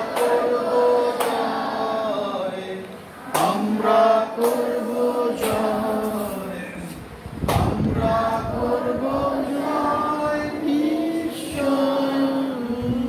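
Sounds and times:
children singing in unison: 0:00.0 - 0:02.6, 0:07.7 - 0:12.8.

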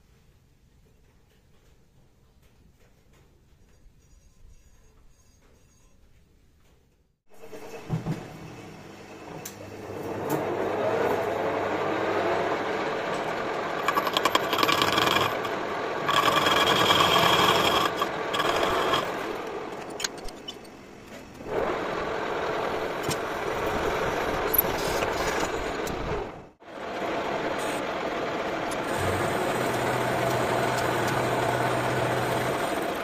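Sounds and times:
metal lathe running: 0:10.7 - 0:20.4, 0:26.8 - 0:33.0
drill boring into spinning metal: 0:13.1 - 0:20.1, 0:28.8 - 0:33.0
lathe tool scraping metal: 0:13.1 - 0:20.7.

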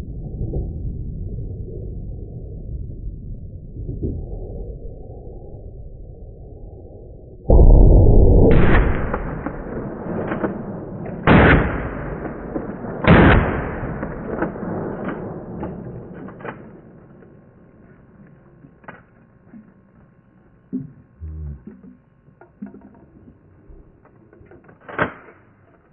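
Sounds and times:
shotgun blasts: 0:08.4 - 0:17.5.

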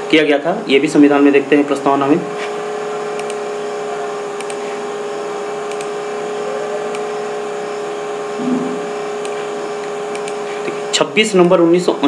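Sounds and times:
steady mechanical hum: 0:00.0 - 0:12.0
faint short clicks: 0:03.2 - 0:03.4, 0:04.4 - 0:04.6, 0:05.7 - 0:05.9, 0:09.2 - 0:10.8.

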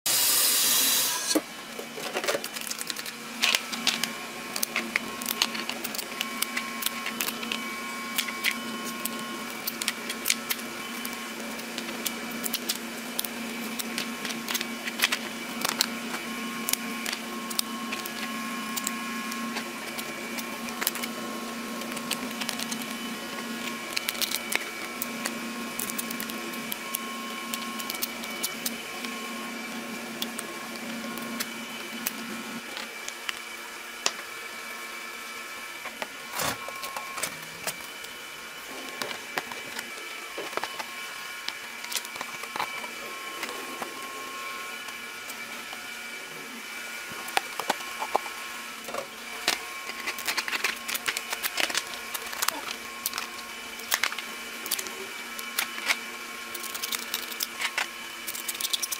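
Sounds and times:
steam hissing from a steamer: 0:00.1 - 0:01.4
steady mechanical hum: 0:00.1 - 0:58.9.

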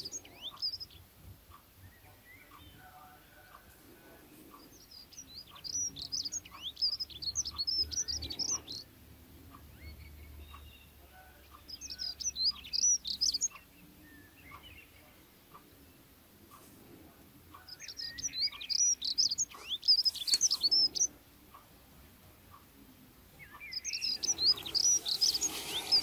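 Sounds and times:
small bird twittering: 0:00.0 - 0:02.9, 0:04.5 - 0:08.9, 0:09.5 - 0:15.6, 0:17.5 - 0:21.6, 0:23.4 - 0:26.0.

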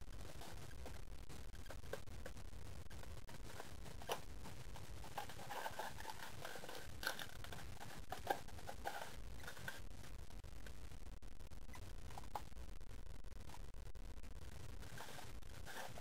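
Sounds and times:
cardboard rustling and scraping: 0:03.3 - 0:09.8.

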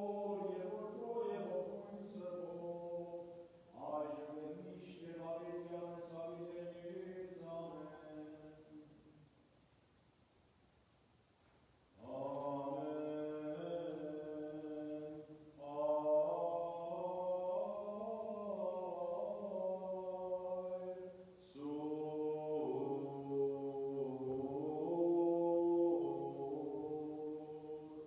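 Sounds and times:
liturgical chant singing: 0:00.0 - 0:09.2, 0:12.0 - 0:28.0.

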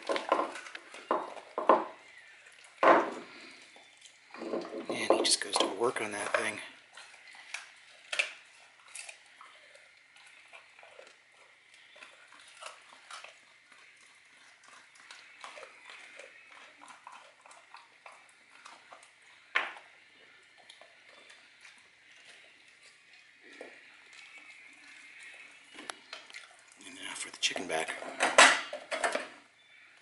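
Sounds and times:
dog chewing and licking food: 0:00.0 - 0:30.0
knock on wooden floor: 0:01.1 - 0:01.9.

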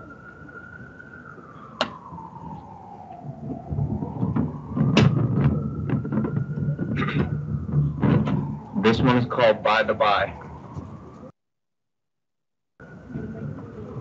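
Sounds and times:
siren wailing: 0:00.0 - 0:11.3
sharp knocks: 0:04.3 - 0:08.4.

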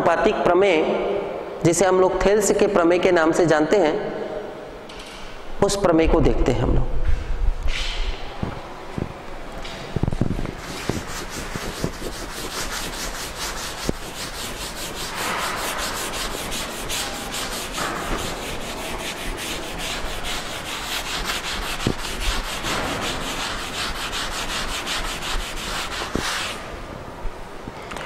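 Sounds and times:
duster rubbing on blackboard: 0:10.2 - 0:26.6.

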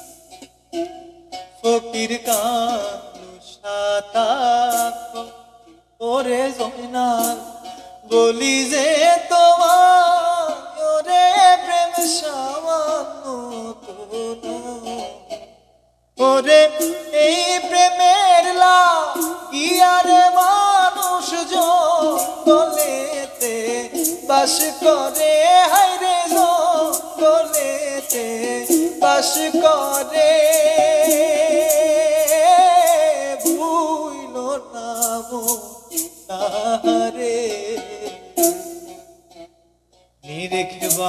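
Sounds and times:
man singing: 0:01.5 - 0:15.6, 0:16.2 - 0:39.1, 0:40.2 - 0:41.0
sharp tapped beat: 0:19.1 - 0:33.7.

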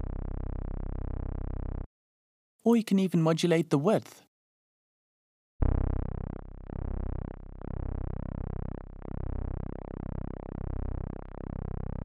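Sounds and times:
synthesizer low note sweeping: 0:00.0 - 0:01.9, 0:05.6 - 0:12.0.

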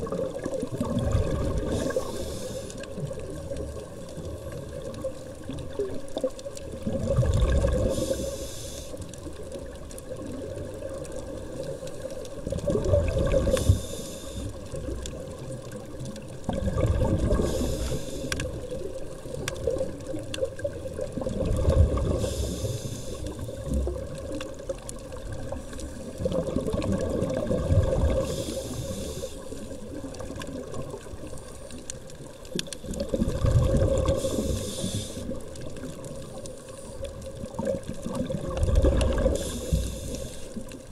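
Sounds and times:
diver breathing through regulator: 0:01.5 - 0:03.0, 0:07.7 - 0:09.1, 0:13.3 - 0:14.7, 0:17.2 - 0:18.8, 0:22.0 - 0:23.8, 0:28.1 - 0:29.7, 0:34.0 - 0:35.5, 0:39.1 - 0:40.7.

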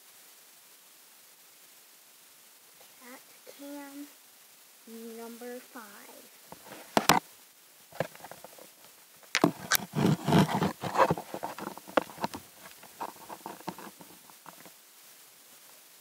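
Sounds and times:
plant leaves rustling: 0:07.9 - 0:14.8.

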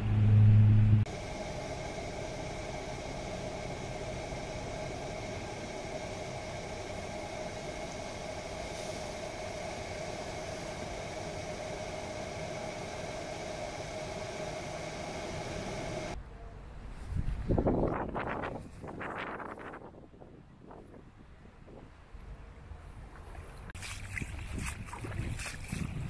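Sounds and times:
engine humming: 0:00.0 - 0:16.5.

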